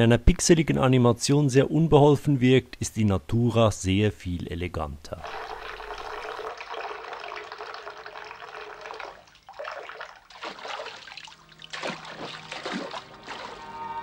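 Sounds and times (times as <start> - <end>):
water rushing from bathtub tap: 5.2 - 13.6
water splashing in bath: 5.2 - 13.7.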